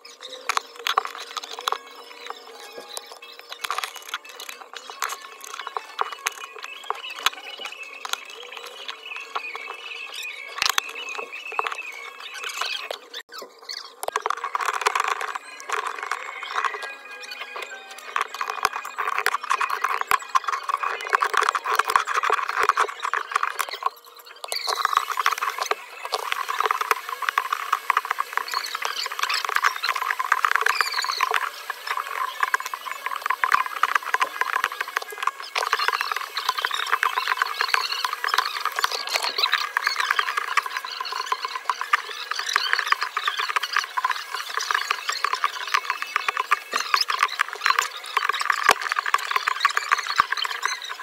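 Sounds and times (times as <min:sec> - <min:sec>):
glass cracking and crunching: 0:02.9 - 0:09.7.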